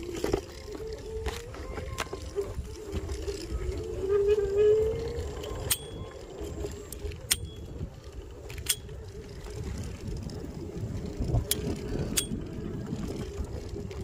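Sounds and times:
scooter tyres rumbling on dirt: 0:00.0 - 0:14.0
sharp ringing clicks: 0:07.2 - 0:07.7.

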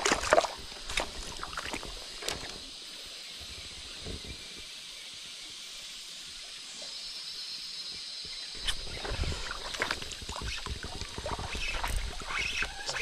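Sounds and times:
splashing in water: 0:00.0 - 0:02.5, 0:08.6 - 0:13.0.

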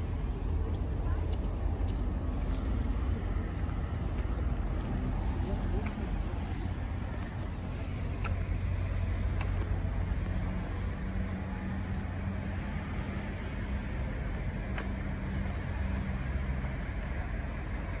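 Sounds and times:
street traffic rumble: 0:00.0 - 0:18.0
vehicle engine humming: 0:00.0 - 0:18.0.

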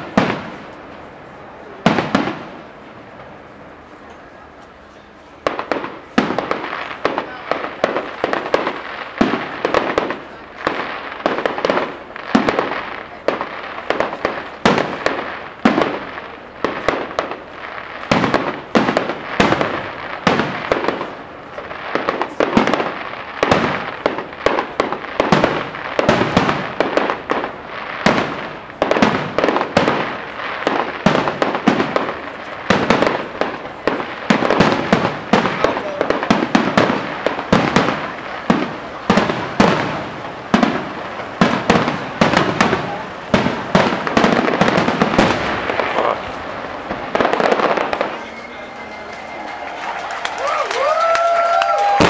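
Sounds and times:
fireworks bangs and bursts: 0:00.0 - 0:52.0.

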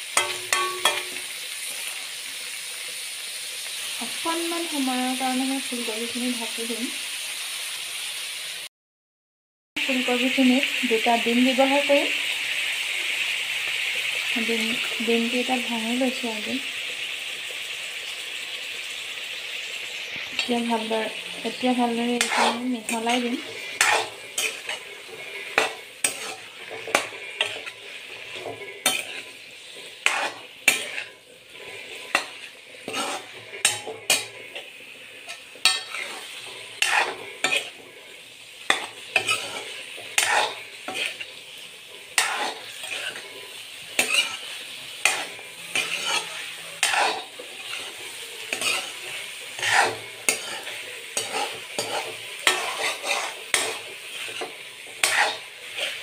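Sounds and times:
metal spatula scraping a pan: 0:00.0 - 0:02.4, 0:19.7 - 0:56.0
food sizzling in a pan: 0:00.0 - 0:08.7, 0:09.8 - 0:56.0.

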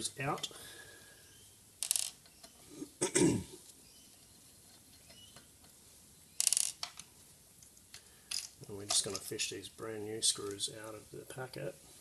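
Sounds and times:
hand tools scraping and clinking: 0:08.8 - 0:09.3.

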